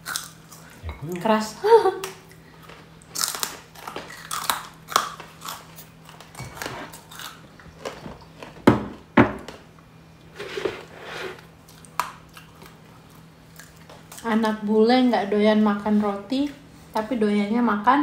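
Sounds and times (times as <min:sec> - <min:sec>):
crunching and chewing crackers: 0:00.0 - 0:00.9, 0:02.0 - 0:08.6, 0:11.4 - 0:14.3
faint steady hum: 0:00.0 - 0:18.0.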